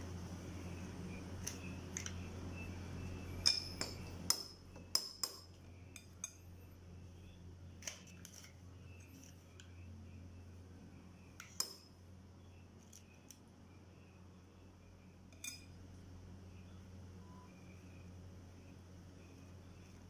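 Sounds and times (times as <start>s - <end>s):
low steady hum: 0.0s - 20.0s
spoon clinking against glass bowl: 3.4s - 6.4s, 11.4s - 11.9s, 15.3s - 15.8s.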